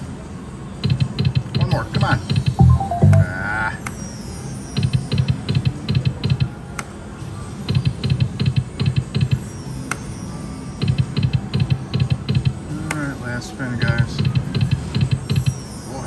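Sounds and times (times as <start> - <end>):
slot machine click: 2.6 - 3.3.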